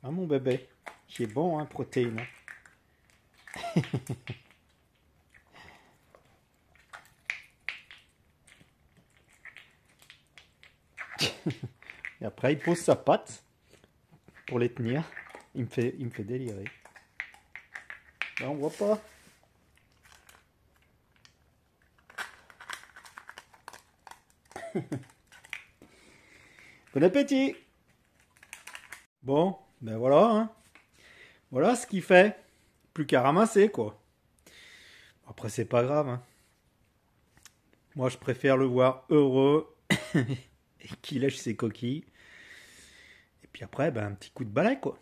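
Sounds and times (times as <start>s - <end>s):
dog crunching eggshells: 0.5s - 13.0s, 14.2s - 19.0s, 19.7s - 27.0s, 27.9s - 29.1s
dog licking eggshells: 16.5s - 18.4s.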